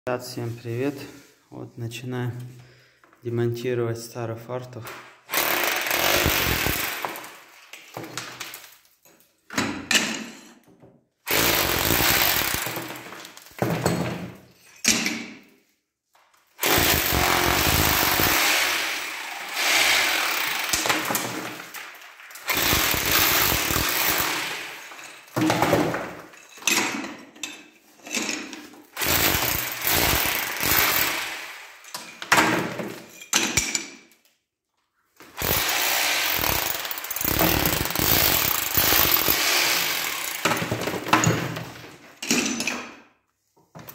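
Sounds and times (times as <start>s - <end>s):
rotary hammer chipping tiles: 5.4s - 7.2s, 11.3s - 13.1s, 16.6s - 18.6s, 19.6s - 24.5s, 29.0s - 31.2s, 35.3s - 40.6s.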